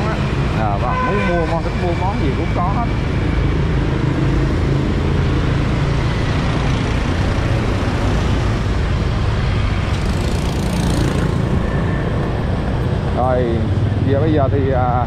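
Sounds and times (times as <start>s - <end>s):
road noise: 0.0s - 15.0s
scooter engine hum: 4.7s - 14.3s.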